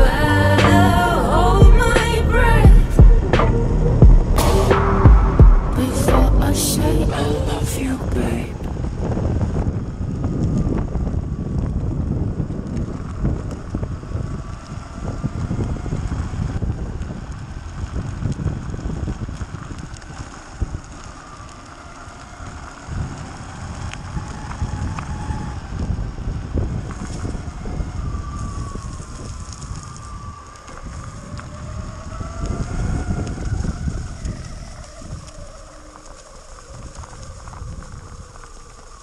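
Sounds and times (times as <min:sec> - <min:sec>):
tyres rumbling: 0:00.0 - 0:39.0
wind buffeting microphone: 0:00.0 - 0:39.0
electric motor whine: 0:08.2 - 0:39.0.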